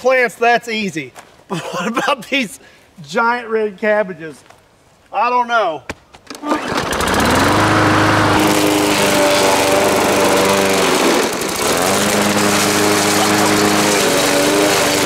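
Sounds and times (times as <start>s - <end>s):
lawn mower engine running: 6.4s - 15.0s.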